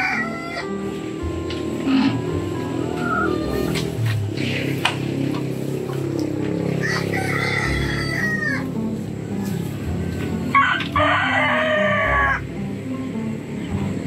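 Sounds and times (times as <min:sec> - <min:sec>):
rooster crowing: 0:00.0 - 0:01.0, 0:01.8 - 0:04.1, 0:06.5 - 0:08.9, 0:10.3 - 0:12.4
background music: 0:00.0 - 0:14.0.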